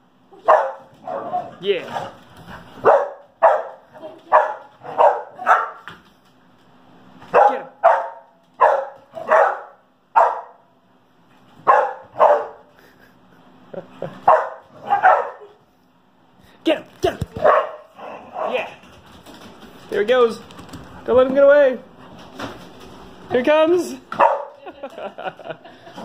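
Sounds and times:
dogs barking: 0:00.4 - 0:02.2, 0:02.8 - 0:05.9, 0:07.3 - 0:10.7, 0:11.6 - 0:12.7, 0:14.2 - 0:15.6, 0:17.4 - 0:18.7, 0:24.1 - 0:24.6.

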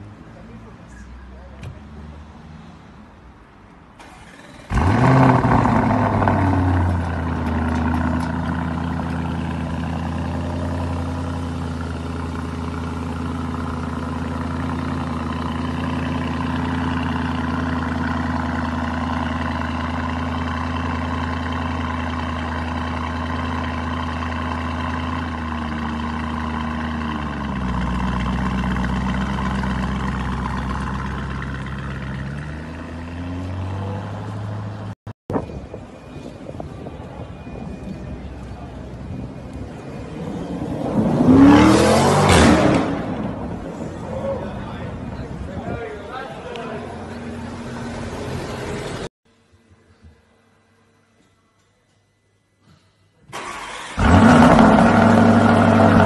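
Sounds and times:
car engine revving and idling: 0:04.1 - 0:34.9, 0:39.1 - 0:45.3, 0:53.4 - 0:56.0.

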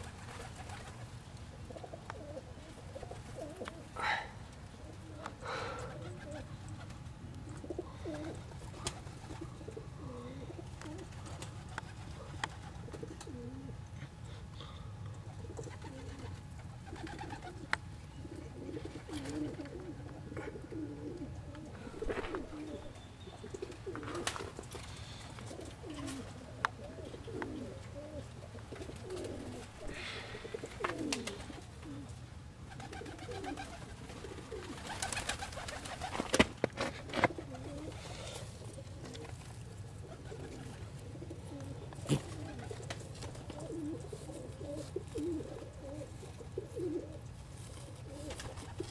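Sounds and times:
pigeons cooing: 0:00.0 - 0:48.9
rustling: 0:21.8 - 0:27.7, 0:28.7 - 0:32.0.

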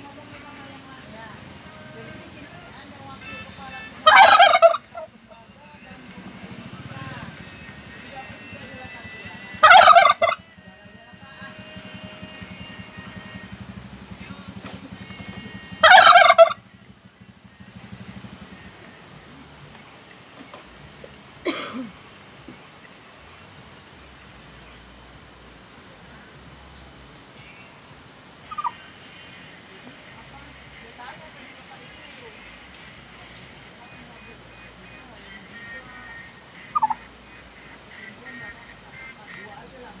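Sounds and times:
low steady hum: 0:00.0 - 0:40.0
steady background noise: 0:00.0 - 0:40.0
turkey gobbling: 0:03.2 - 0:05.2, 0:06.1 - 0:10.5, 0:14.8 - 0:16.7, 0:28.4 - 0:40.0.

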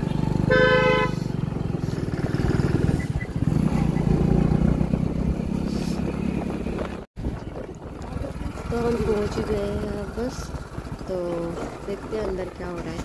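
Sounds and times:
motorcycle engine running: 0:00.0 - 0:13.0
horn beep: 0:00.4 - 0:01.3.

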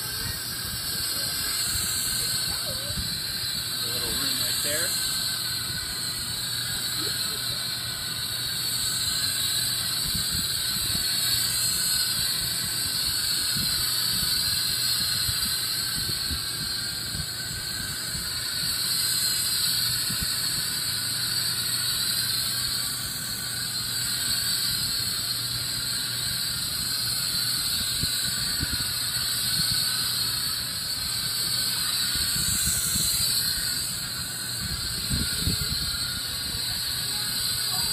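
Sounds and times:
gas hissing through filler line: 0:00.0 - 0:37.9.

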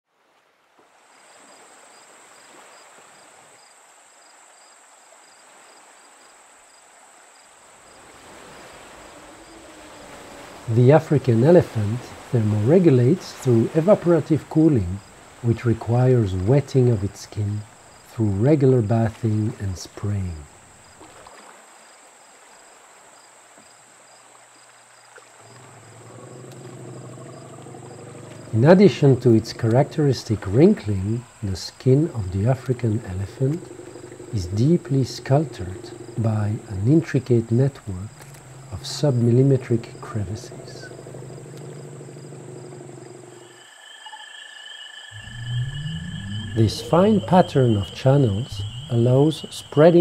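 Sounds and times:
soft hiss: 0:00.6 - 0:27.1
insects droning: 0:00.8 - 0:50.0
cricket-like chirp: 0:01.1 - 0:50.0
low steady hum: 0:25.6 - 0:43.4, 0:45.2 - 0:50.0.

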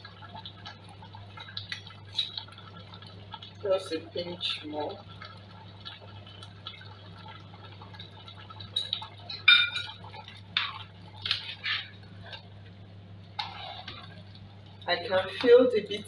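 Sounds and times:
spoon stirring in metal pot: 0:13.4 - 0:14.2.

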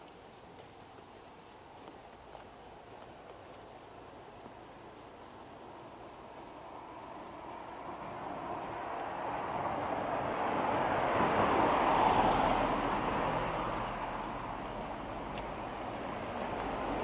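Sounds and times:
road vehicle passing by: 0:00.3 - 0:17.0.

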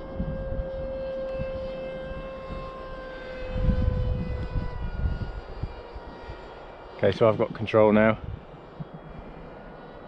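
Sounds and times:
model plane motor whining: 0:00.0 - 0:10.0
wind buffeting microphone: 0:00.0 - 0:10.0.

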